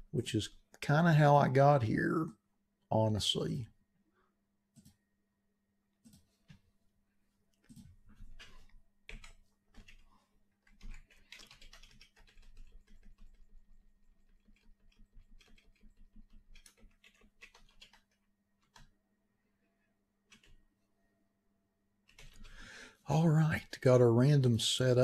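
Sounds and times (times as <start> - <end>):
keyboard typing: 7.6 - 19.0, 20.3 - 20.6, 22.1 - 22.6.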